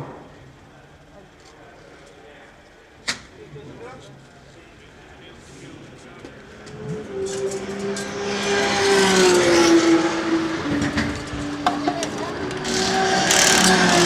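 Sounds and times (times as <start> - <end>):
race car engines droning: 3.3 - 14.0.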